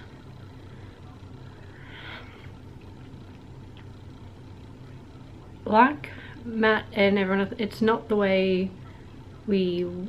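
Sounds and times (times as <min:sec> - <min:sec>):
low room hum: 0:00.0 - 0:10.0
soft breath: 0:00.6 - 0:02.6.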